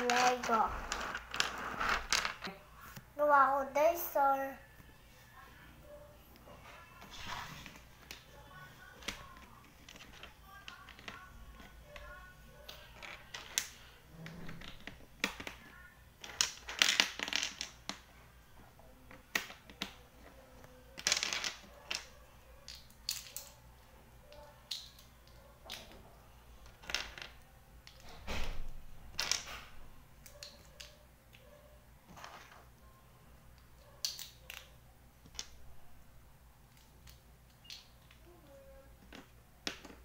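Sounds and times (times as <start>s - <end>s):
plastic toy bricks clattering: 0.0s - 2.5s, 12.7s - 13.8s, 14.5s - 18.1s, 21.0s - 23.6s, 24.7s - 25.1s.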